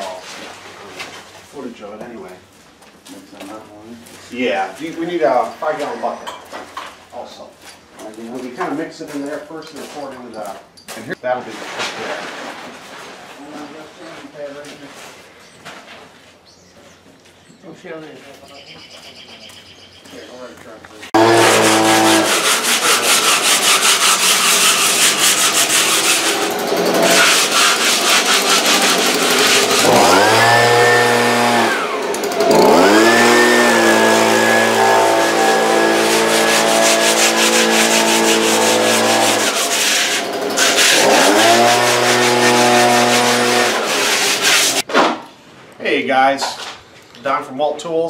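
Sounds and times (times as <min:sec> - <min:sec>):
leaf blower engine revving: 0:21.2 - 0:23.2, 0:25.8 - 0:27.5, 0:28.2 - 0:44.8.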